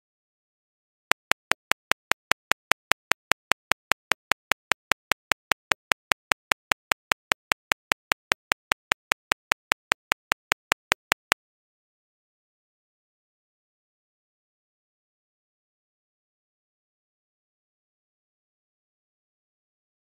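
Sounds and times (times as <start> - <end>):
rapid even sharp clicks: 1.1 - 11.4.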